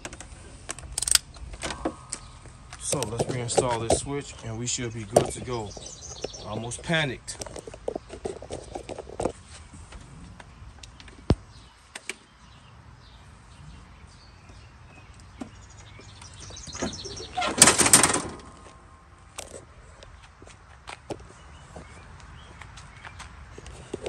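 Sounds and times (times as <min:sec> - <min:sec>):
mower seat clattering onto frame: 0:16.6 - 0:18.7.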